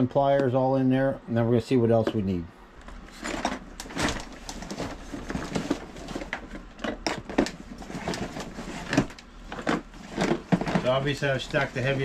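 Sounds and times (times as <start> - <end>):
hard plastic cases clattering: 3.0 - 12.0.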